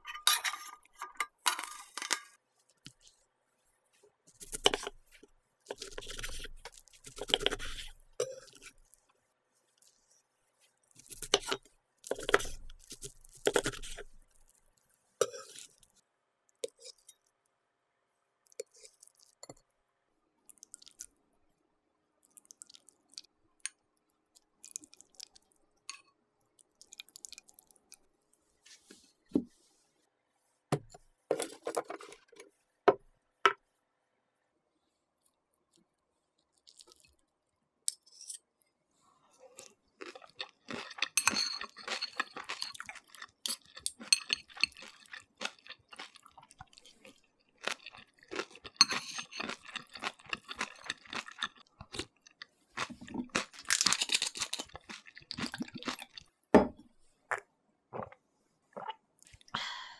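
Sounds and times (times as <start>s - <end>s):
chopsticks clinking and scraping: 0.0s - 2.4s, 5.7s - 8.8s, 11.0s - 14.2s, 15.2s - 15.8s, 31.3s - 32.4s, 37.9s - 38.5s, 40.1s - 46.2s, 47.6s - 51.6s, 52.8s - 56.2s
dishes and cutlery clinking: 0.0s - 2.4s, 41.2s - 42.8s, 48.8s - 49.7s.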